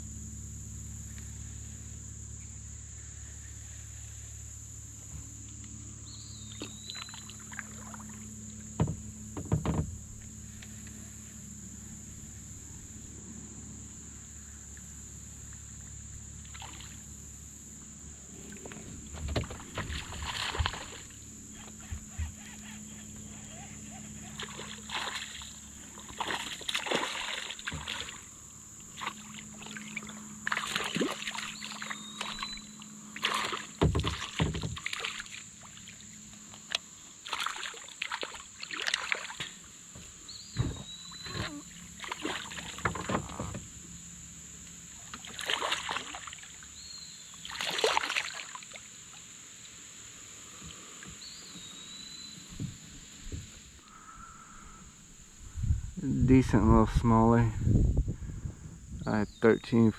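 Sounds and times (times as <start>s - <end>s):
high insect drone: 0.0s - 59.9s
fish splashing in water: 16.4s - 17.0s, 19.3s - 21.2s, 24.4s - 28.3s, 28.9s - 36.1s, 37.2s - 39.6s, 41.0s - 43.0s, 45.0s - 46.7s, 47.4s - 49.0s.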